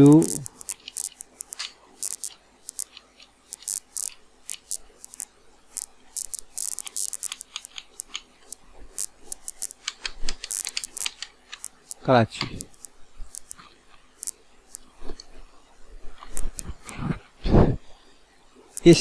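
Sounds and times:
keyboard keys clicking: 6.2 - 8.3, 9.0 - 13.6.

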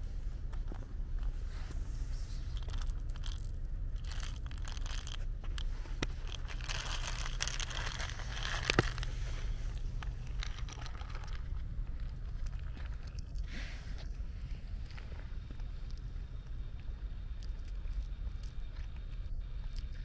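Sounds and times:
cat crunching kibble: 0.5 - 20.0
kibble rattling onto asphalt: 2.4 - 13.5.

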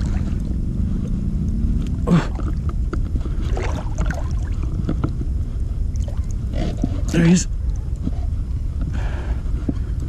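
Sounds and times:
water splash: 0.0 - 0.5, 3.4 - 4.8
steady low rumble: 0.0 - 10.0
water sloshing from wading: 0.0 - 10.0.

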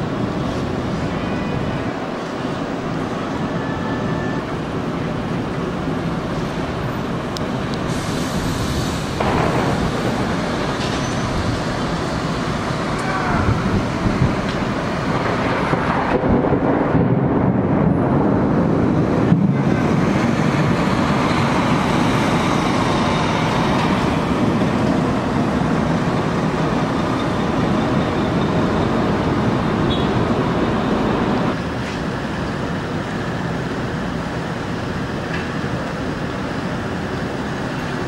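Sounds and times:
thunder rumbling: 8.8 - 37.4.

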